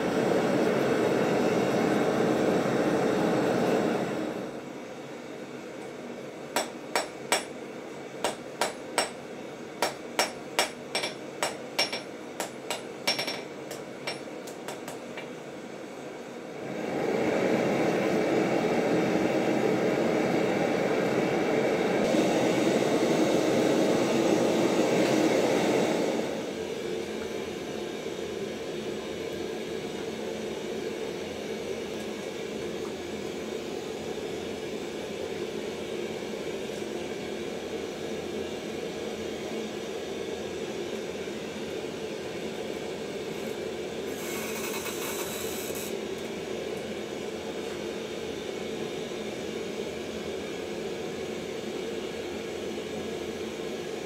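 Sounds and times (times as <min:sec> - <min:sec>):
gas forge burner rushing: 0:00.0 - 0:54.0
hammer striking steel on anvil: 0:06.6 - 0:07.6, 0:08.2 - 0:09.2, 0:09.8 - 0:15.0.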